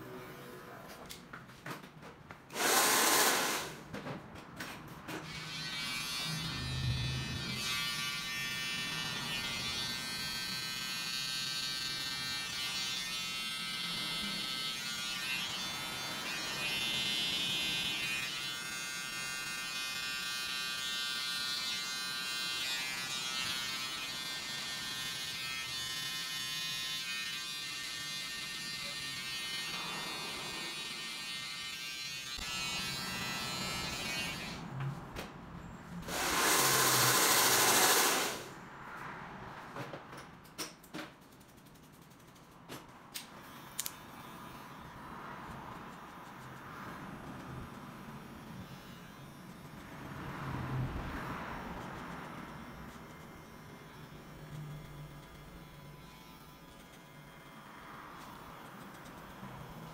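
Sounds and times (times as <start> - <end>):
electric hair clipper buzzing: 2.6 - 3.7, 5.3 - 34.6, 36.1 - 38.5, 43.4 - 45.0, 52.4 - 59.9.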